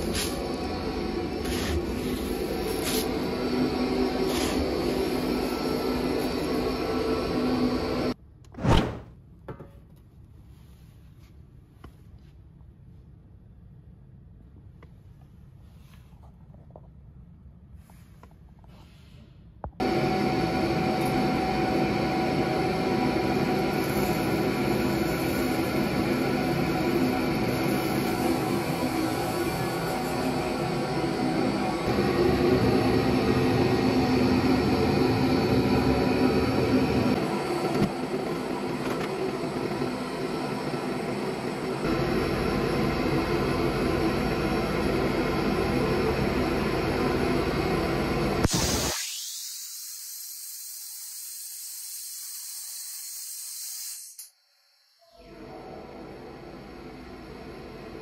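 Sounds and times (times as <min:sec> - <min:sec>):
dry ice blasting machine hissing: 0:00.0 - 0:08.2, 0:19.8 - 0:54.6.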